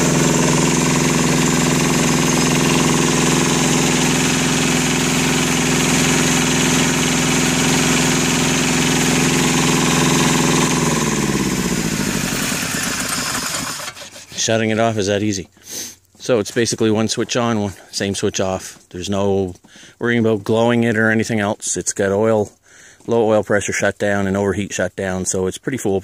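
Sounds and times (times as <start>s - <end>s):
diesel generator running: 0.0s - 17.2s.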